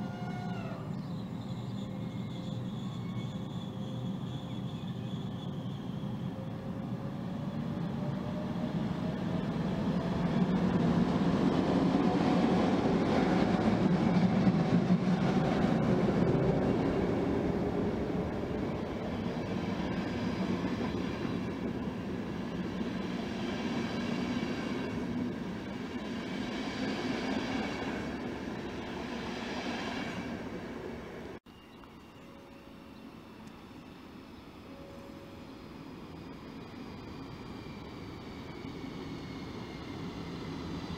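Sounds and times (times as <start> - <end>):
train coaches rolling rumble: 0.0 - 31.4
electric locomotive passing: 0.0 - 40.9.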